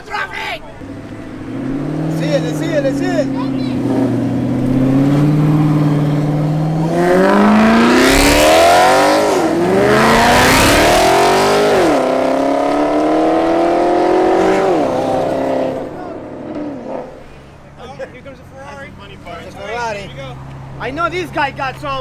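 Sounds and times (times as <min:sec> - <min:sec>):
car engine accelerating: 0:00.7 - 0:17.8.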